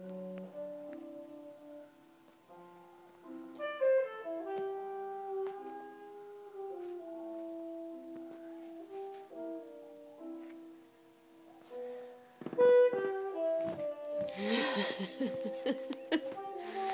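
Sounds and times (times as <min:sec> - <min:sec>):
piano: 0:00.0 - 0:16.9
saxophone held notes: 0:03.5 - 0:10.3, 0:12.4 - 0:16.9.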